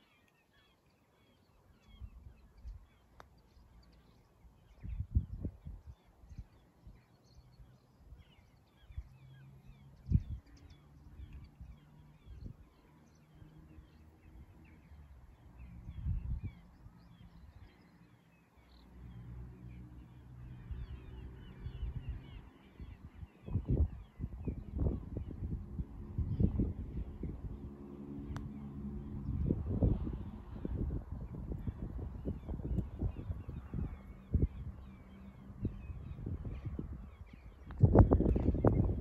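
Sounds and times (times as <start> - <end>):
small birds singing: 0.0 - 39.0
wind rumbling on microphone: 1.8 - 17.9, 18.6 - 39.0.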